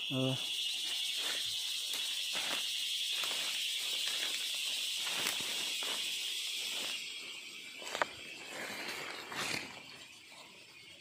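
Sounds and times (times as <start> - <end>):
high-pitched insect drone: 0.0 - 11.0
footsteps in leaf litter: 0.8 - 7.1.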